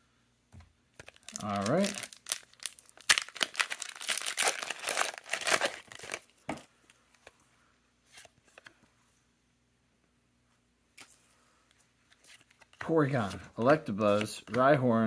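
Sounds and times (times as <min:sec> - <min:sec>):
foil wrapper tearing and crinkling: 0:01.0 - 0:06.3
faint handling sounds: 0:04.4 - 0:09.4, 0:10.4 - 0:14.9.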